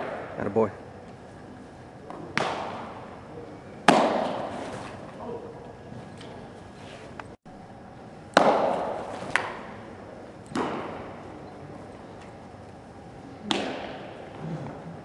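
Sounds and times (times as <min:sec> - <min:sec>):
baseball smacking into mitt: 0:02.1 - 0:02.8, 0:03.9 - 0:04.6, 0:08.3 - 0:09.7, 0:10.5 - 0:11.0, 0:13.4 - 0:14.1.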